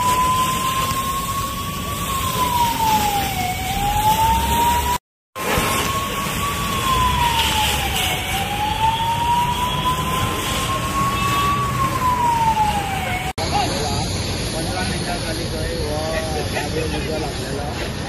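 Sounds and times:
emergency vehicle siren wailing: 0.0s - 14.0s
steady background noise: 0.0s - 18.0s.

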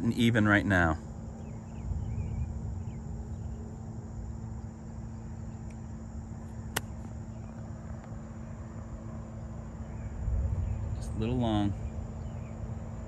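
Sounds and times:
steady high hum: 0.0s - 13.0s
golf club striking ball: 6.7s - 7.1s.

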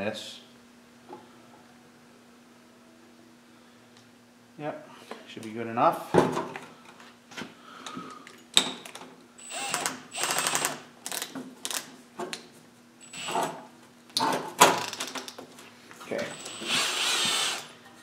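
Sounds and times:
cordless drill whirring and clicking: 9.4s - 11.8s, 16.3s - 17.7s.

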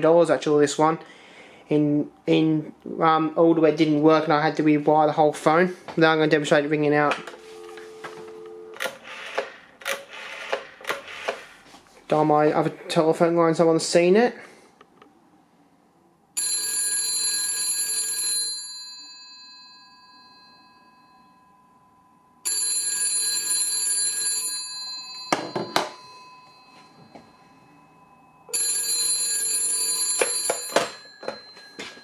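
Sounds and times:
telephone bell ringing: 7.2s - 9.4s, 16.4s - 32.0s.

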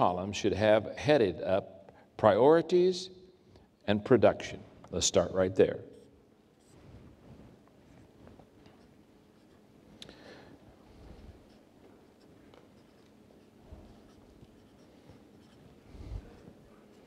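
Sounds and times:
marker writing on whiteboard: 8.4s - 9.7s, 11.0s - 17.0s.

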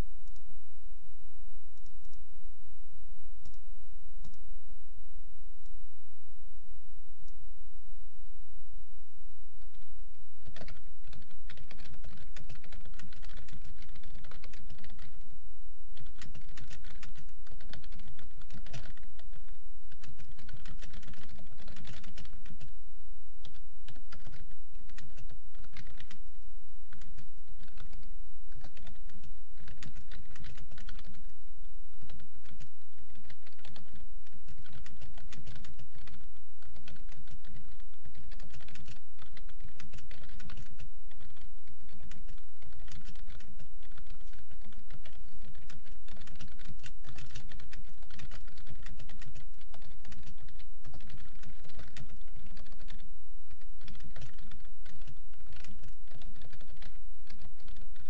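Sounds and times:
low background hum: 0.0s - 58.0s
fast typing on keyboard: 9.6s - 15.3s, 15.9s - 22.7s, 23.4s - 58.0s.

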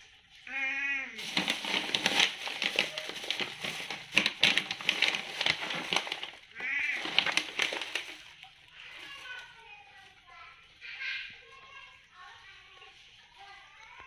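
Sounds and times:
plastic bag crinkling: 1.2s - 10.3s.

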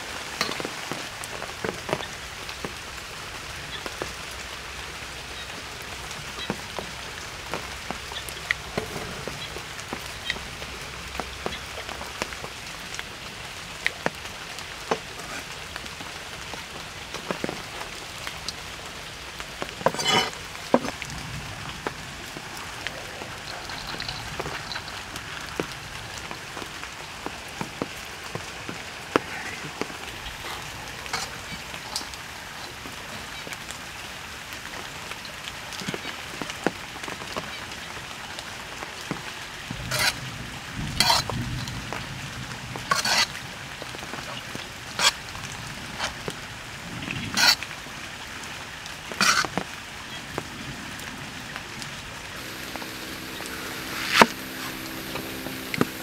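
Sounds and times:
metal ladle scraping wok: 19.8s - 20.4s, 30.4s - 32.8s, 39.9s - 40.2s, 41.0s - 41.3s, 42.9s - 43.3s, 47.4s - 47.6s, 53.4s - 55.3s
stirring clicks: 27.6s - 32.9s
food sizzling in a wok: 39.9s - 40.2s, 40.8s - 41.9s, 42.6s - 43.4s, 52.4s - 56.0s.

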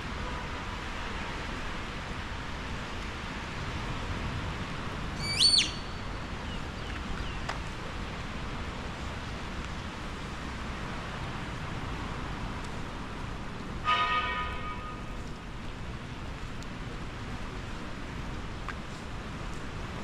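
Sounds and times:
whistled bird call: 5.2s - 5.9s.

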